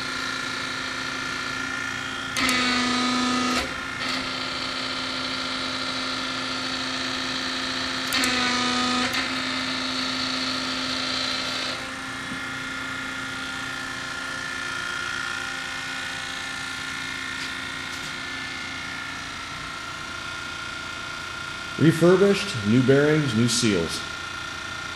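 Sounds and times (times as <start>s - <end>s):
machine hum: 0.0s - 24.9s.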